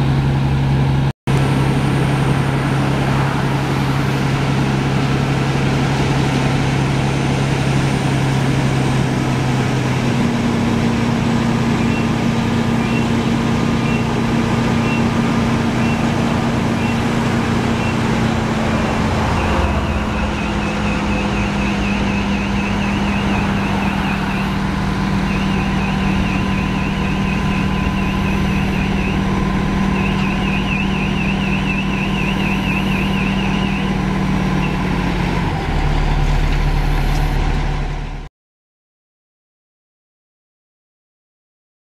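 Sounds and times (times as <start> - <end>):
diesel engine running: 0.0 - 38.3
warbling tone: 13.8 - 34.0
faint high electronic beeping: 19.4 - 24.6, 25.2 - 33.9.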